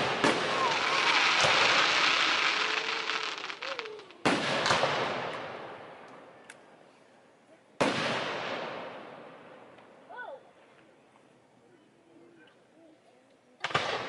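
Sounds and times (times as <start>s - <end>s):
firework crackle: 0.0s - 5.8s
firework bangs echoing: 0.0s - 6.0s, 7.8s - 9.6s.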